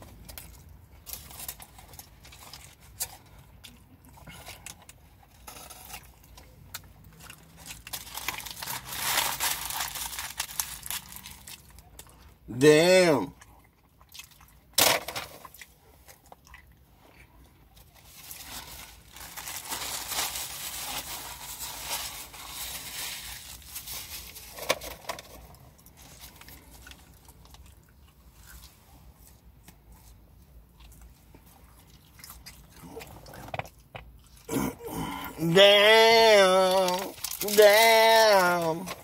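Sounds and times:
chewing and crunching food: 0.0 - 12.5, 13.3 - 14.8, 15.4 - 39.0.

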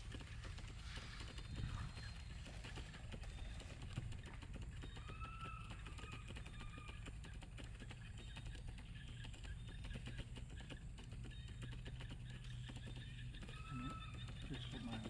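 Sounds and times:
faint whistled call: 13.5 - 15.0.

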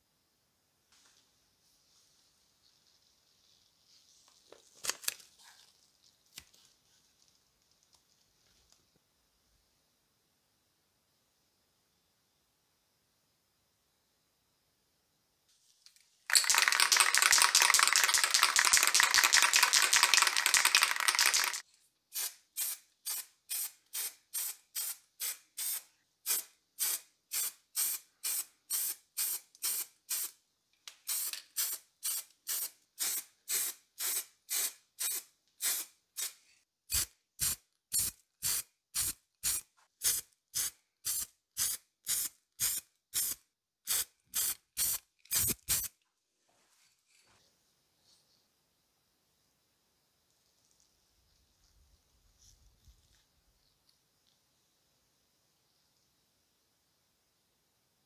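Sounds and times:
spray paint can hissing: 16.3 - 30.4, 31.1 - 45.9.

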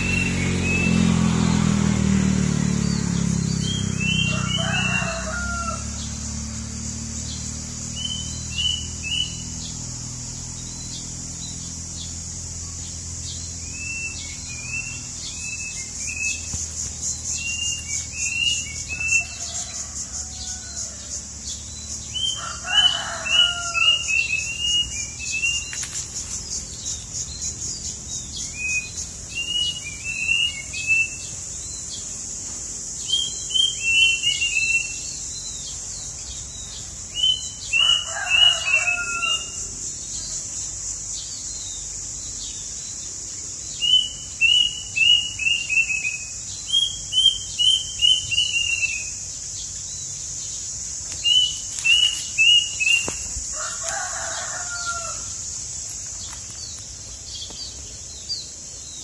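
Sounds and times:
songbird whistling: 0.0 - 1.0, 7.9 - 9.6, 13.6 - 16.7, 23.4 - 25.8, 28.4 - 31.2, 33.0 - 35.2, 43.8 - 49.2
rooster crowing: 3.9 - 6.4, 17.4 - 25.8, 37.4 - 39.9, 51.9 - 55.6.

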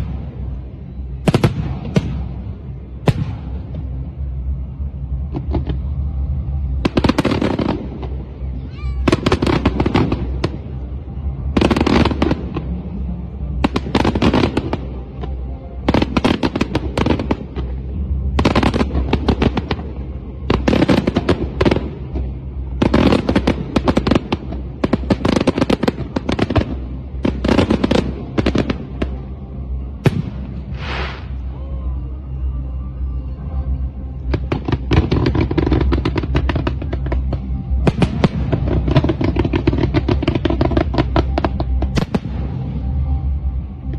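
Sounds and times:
fireworks popping and banging: 34.2 - 42.7.

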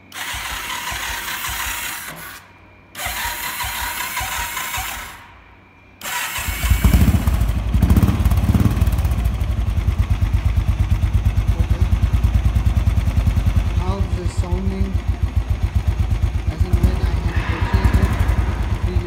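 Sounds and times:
engine thumping idle: 0.0 - 2.2, 6.6 - 19.0
starter motor whirring: 0.0 - 5.3, 6.0 - 7.7.

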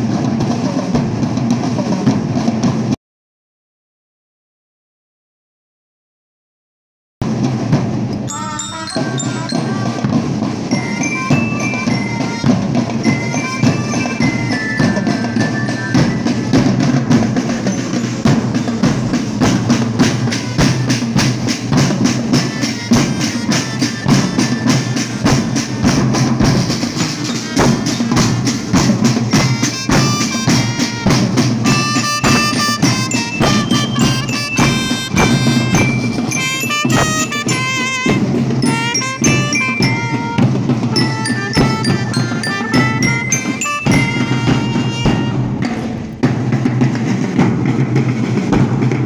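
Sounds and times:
bass drums and snare drums: 0.0 - 3.0, 7.2 - 49.0
bell lyres ringing melody: 8.2 - 45.8.

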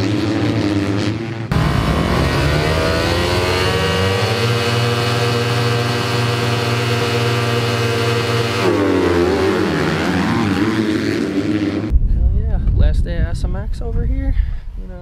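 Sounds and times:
motocross bikes revving: 0.0 - 11.9.

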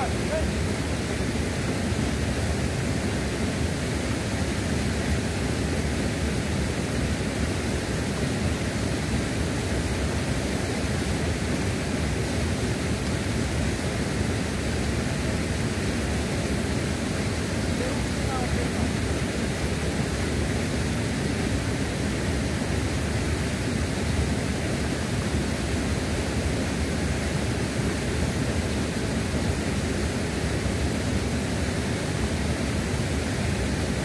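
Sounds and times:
waterfall and river rushing: 0.0 - 34.0.

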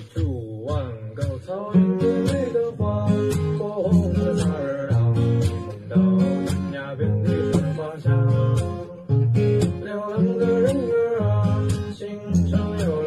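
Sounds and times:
percussive slaps on guitar strings: 0.0 - 5.9
acoustic guitar strumming: 0.0 - 13.0.

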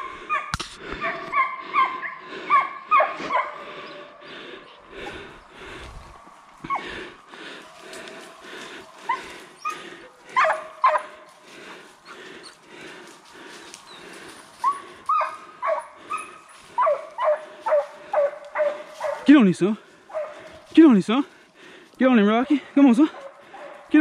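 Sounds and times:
hounds barking and yelping: 0.0 - 20.7, 22.4 - 24.0
footsteps through leaf litter: 18.7 - 19.5.

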